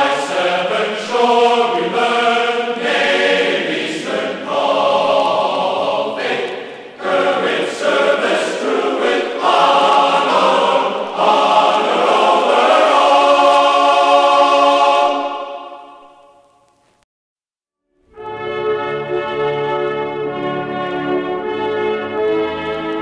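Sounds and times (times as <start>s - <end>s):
choir singing held chords: 0.0s - 16.7s.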